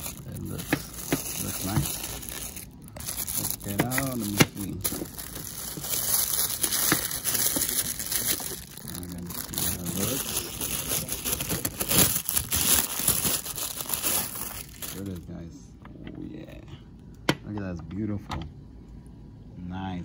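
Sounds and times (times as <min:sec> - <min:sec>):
plastic packaging crinkling: 0:00.0 - 0:15.2.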